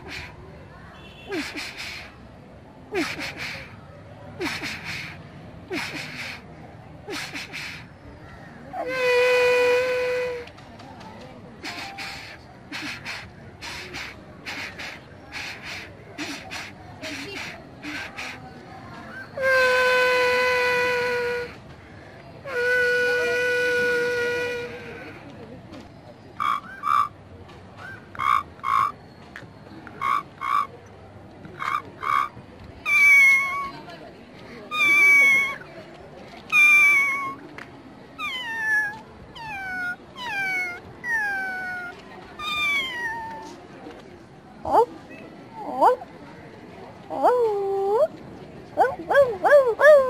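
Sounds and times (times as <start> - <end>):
boy imitating train horn: 8.8 - 10.5, 22.5 - 25.0.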